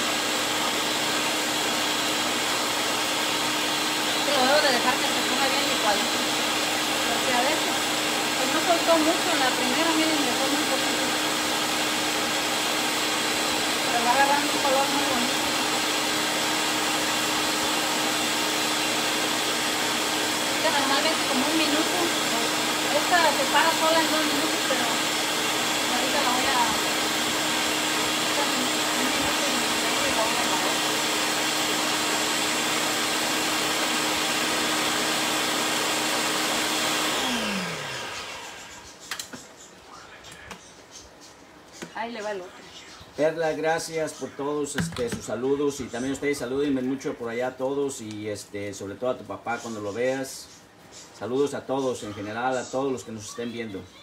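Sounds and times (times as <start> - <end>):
blender motor running: 0.0 - 38.9.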